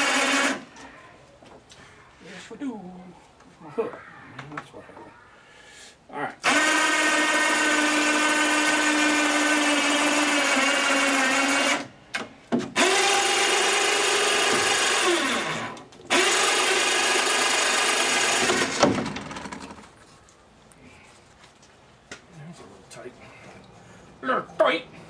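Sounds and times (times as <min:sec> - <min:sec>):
electric hoist motor whining: 0:00.0 - 0:00.7, 0:06.4 - 0:11.9, 0:12.8 - 0:19.8.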